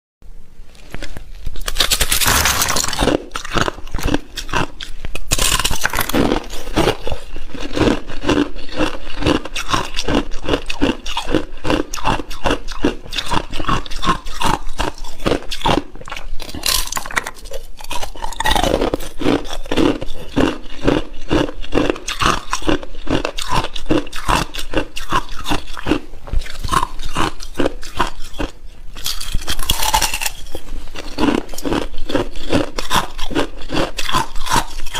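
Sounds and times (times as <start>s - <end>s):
ice crunching being chewed: 0.8s - 34.9s
ice snapping bites: 1.6s - 4.7s, 5.3s - 6.5s.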